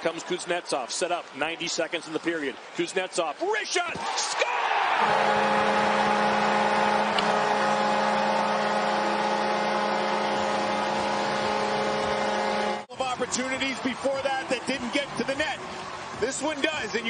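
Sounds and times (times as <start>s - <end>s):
crowd cheering: 0.0s - 17.0s
goal horn blaring: 4.9s - 16.0s.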